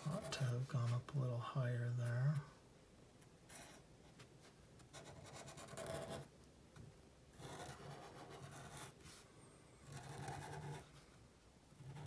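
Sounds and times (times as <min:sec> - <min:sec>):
marker scratching on paper: 0:04.9 - 0:06.2, 0:07.4 - 0:09.2, 0:09.9 - 0:10.9.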